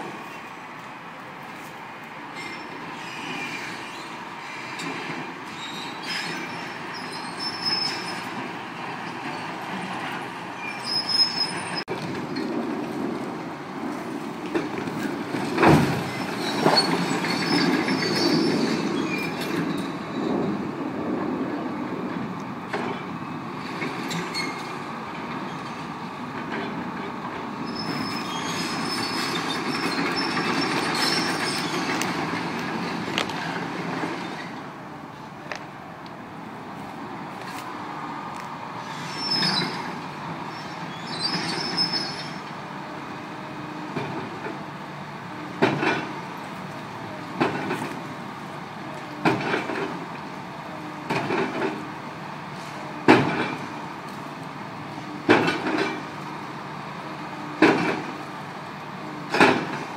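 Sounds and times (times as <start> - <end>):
high metallic squeals: 2.3 - 4.8, 5.6 - 8.4, 10.6 - 11.9, 38.8 - 39.9, 40.5 - 42.4
excavator running under load: 3.6 - 59.9.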